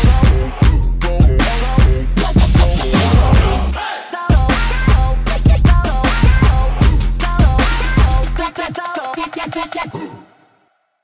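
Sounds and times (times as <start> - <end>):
electronic music with drum beat: 0.0 - 10.3.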